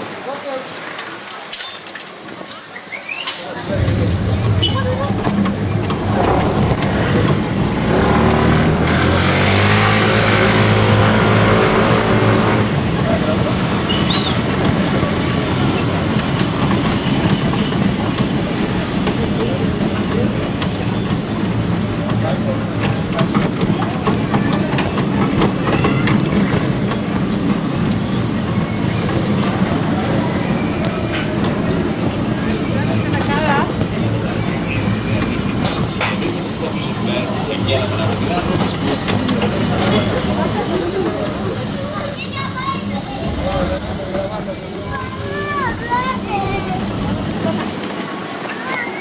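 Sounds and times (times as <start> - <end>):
faint voices of passers-by: 0.0 - 49.0
street traffic: 0.0 - 49.0
motor engine running: 3.7 - 13.8.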